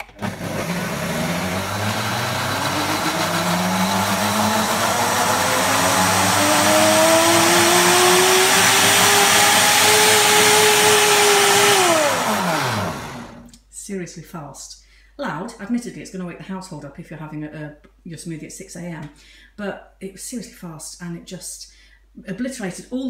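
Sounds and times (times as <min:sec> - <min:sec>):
blender motor whine: 0:00.0 - 0:13.5.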